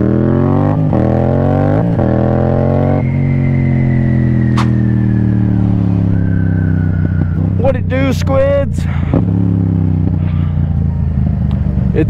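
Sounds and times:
motorcycle engine revving: 0.0 - 12.0
sharp click: 4.5 - 4.8.

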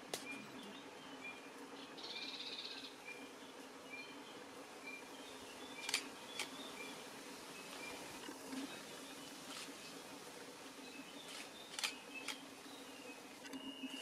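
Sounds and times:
sharp clicks: 5.8 - 6.6, 11.3 - 12.4.

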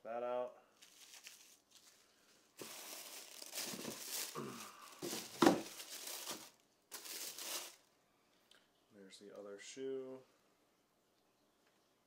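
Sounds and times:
tissue paper crinkling: 0.8 - 7.9.

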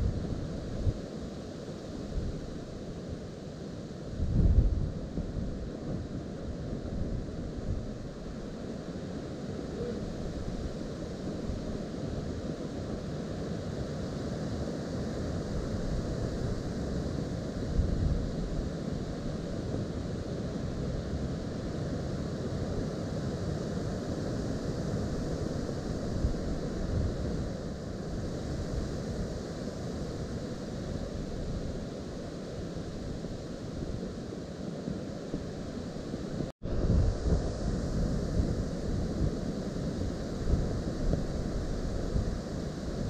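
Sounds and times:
wind buffeting microphone: 4.2 - 5.6, 35.3 - 43.0.

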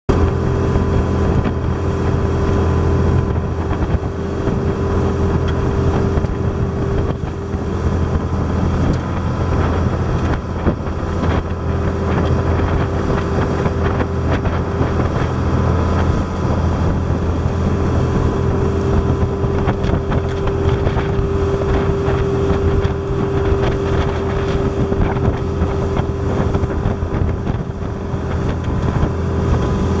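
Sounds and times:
boat engine drone: 0.0 - 30.0
wind gusting on microphone: 0.1 - 30.0.

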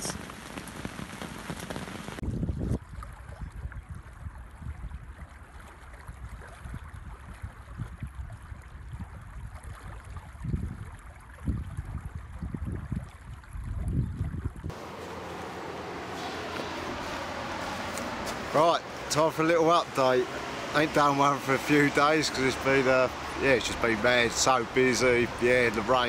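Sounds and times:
heavy rain pattering: 0.0 - 2.2, 14.7 - 26.0
wind gusts buffeting microphone: 10.4 - 26.0.

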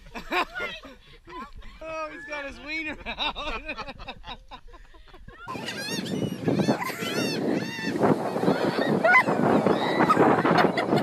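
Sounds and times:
gulls squawking: 5.5 - 11.0.

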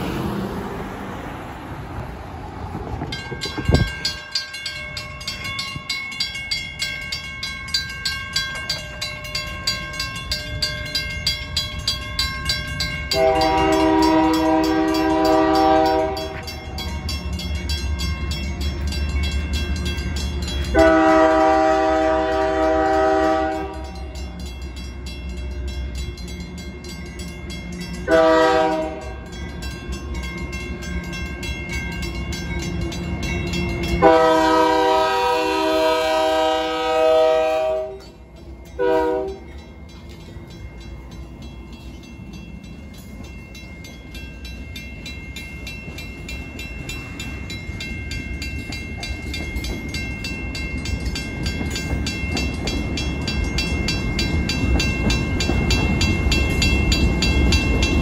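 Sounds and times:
crossing warning bells ringing: 0.0 - 58.0
locomotive air horn blasts: 13.1 - 16.6, 20.7 - 24.1, 28.1 - 29.1, 34.0 - 38.1, 38.8 - 39.5.

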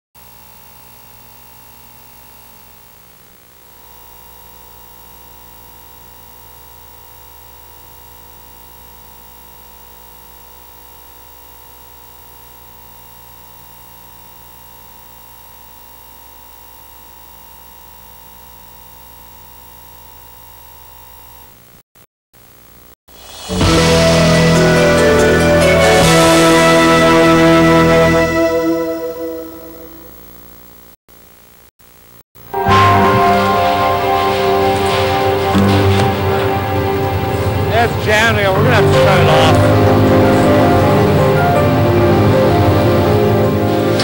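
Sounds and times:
tape hiss: 23.2 - 44.0
steady high-pitched tone: 23.6 - 30.3, 32.5 - 44.0.

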